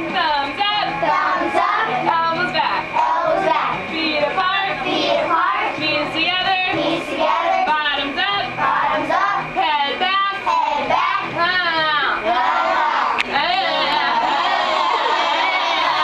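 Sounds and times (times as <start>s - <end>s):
backing music: 0.0s - 16.0s
women singing: 0.3s - 15.1s
children singing: 3.0s - 3.8s, 6.7s - 7.7s, 12.2s - 13.2s.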